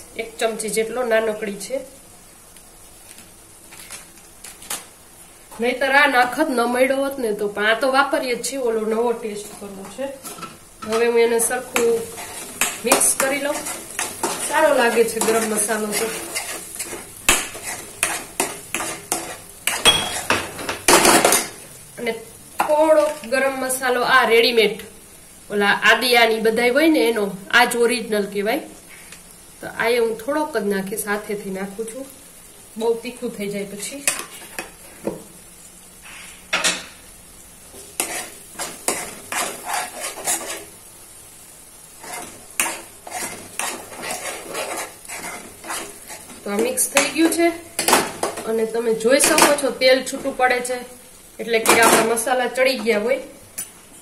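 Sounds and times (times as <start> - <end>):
spice paste sizzling in oil: 0.0 - 54.0
spoon scraping pan: 9.0 - 21.6, 34.0 - 35.2, 37.7 - 40.8, 41.9 - 48.5.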